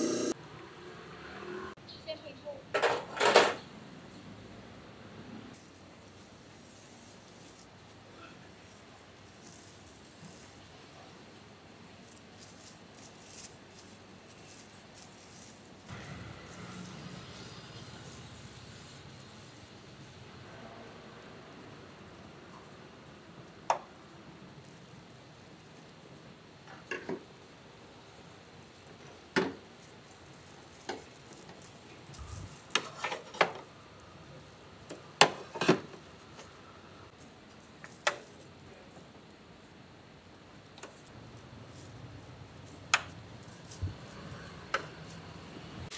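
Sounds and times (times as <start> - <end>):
plastic sheet rustling and crinkling: 5.6 - 20.5, 28.3 - 45.9.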